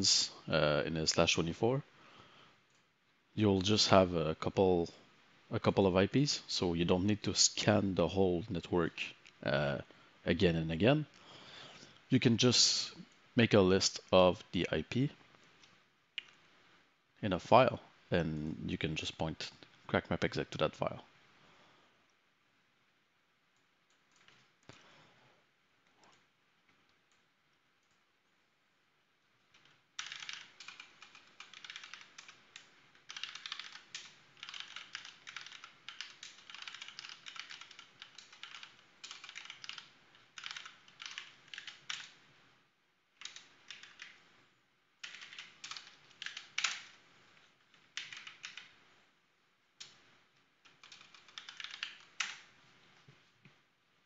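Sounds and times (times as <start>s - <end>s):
typing on computer keyboard: 23.6s - 24.8s, 29.5s - 42.2s, 43.2s - 44.2s, 45.0s - 47.0s, 47.7s - 48.8s, 50.6s - 52.5s.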